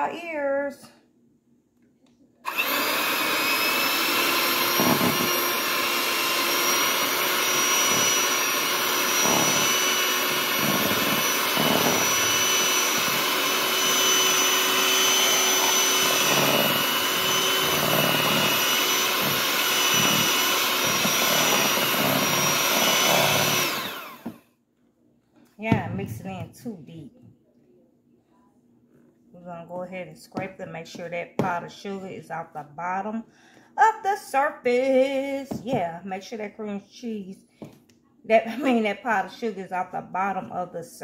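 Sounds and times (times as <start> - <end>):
electric hand mixer whining: 2.5 - 24.4.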